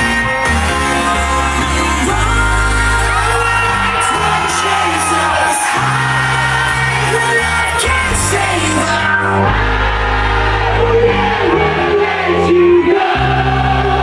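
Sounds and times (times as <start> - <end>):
electro house music: 0.0 - 14.0
long held bass notes: 0.0 - 14.0
person singing: 0.0 - 14.0
crowd shouting along: 0.5 - 14.0.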